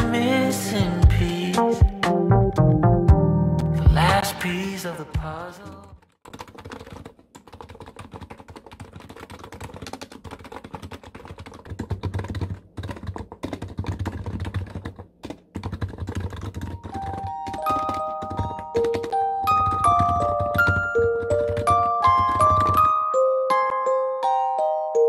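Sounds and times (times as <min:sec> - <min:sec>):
soft music notes: 0:00.0 - 0:04.4
fast keyboard typing: 0:05.9 - 0:23.1.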